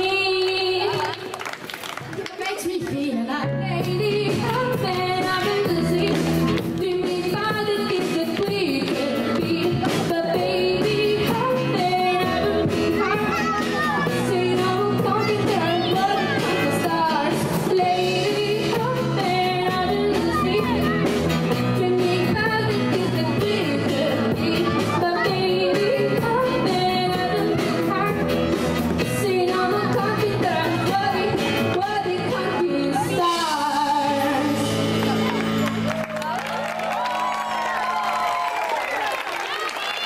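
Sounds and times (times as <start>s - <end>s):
woman singing through microphone: 0.0s - 1.3s, 2.4s - 13.2s, 14.0s - 34.8s
drum kit beat: 3.8s - 32.6s.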